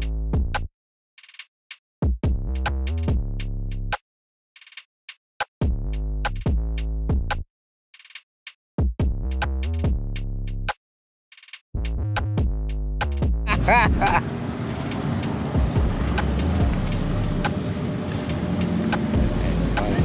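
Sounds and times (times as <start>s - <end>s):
electronic music with deep bass: 11.8s - 14.2s, 15.6s - 17.5s, 19.0s - 20.0s.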